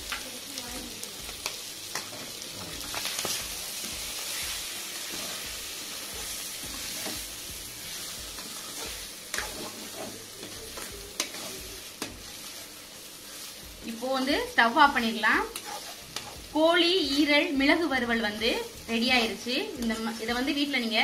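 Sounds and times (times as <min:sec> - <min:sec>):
food sizzling in a pan: 0:00.0 - 0:21.0
spatula scraping a pan: 0:01.9 - 0:13.6, 0:15.0 - 0:16.5.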